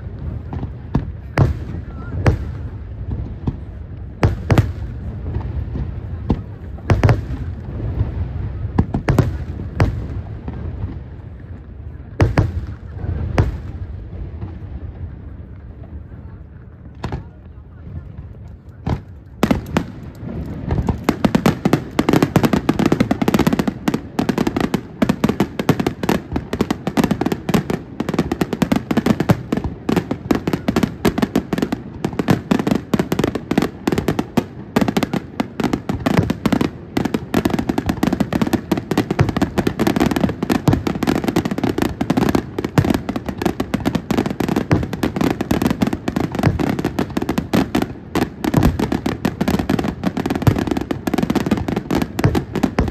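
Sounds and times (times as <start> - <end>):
firework bangs: 0.0 - 52.9
firework barrage with crackling: 0.0 - 52.9.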